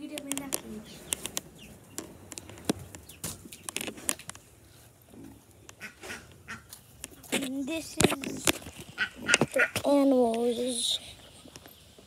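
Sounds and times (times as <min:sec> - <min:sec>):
sharp clicks and knocks: 0:00.0 - 0:04.4, 0:07.0 - 0:10.4
poultry chirping: 0:00.4 - 0:03.8, 0:05.2 - 0:09.8.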